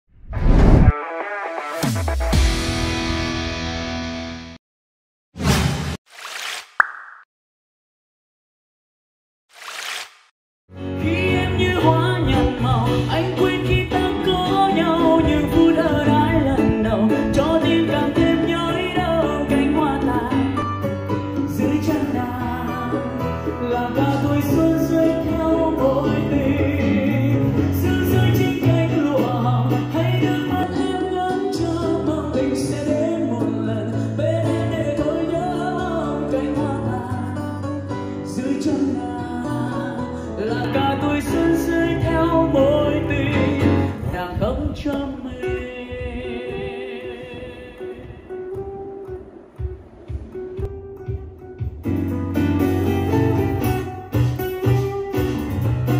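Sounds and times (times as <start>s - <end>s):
song with voice and guitar on speaker: 10.8s - 49.0s.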